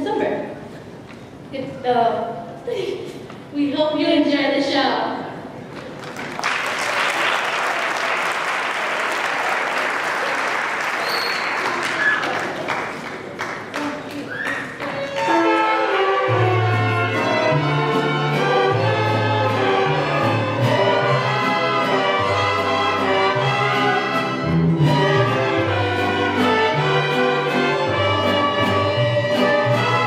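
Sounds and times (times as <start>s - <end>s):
trumpets: 14.8s - 30.0s
violins playing melody: 14.8s - 30.0s
strummed guitars: 15.2s - 30.0s.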